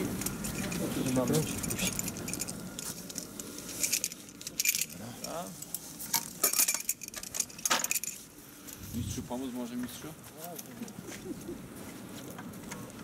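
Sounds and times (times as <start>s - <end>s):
carabiners clinking and jangling: 0.2s - 8.8s.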